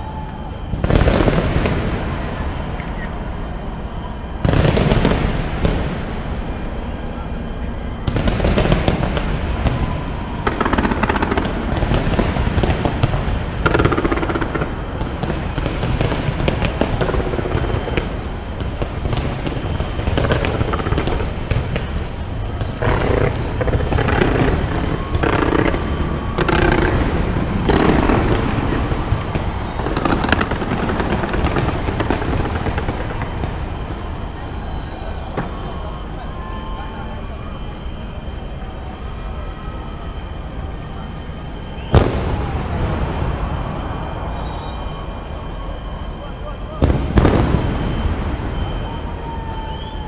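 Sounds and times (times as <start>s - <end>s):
fireworks bangs and crackles: 0.0s - 50.0s
low rumble: 1.2s - 15.6s.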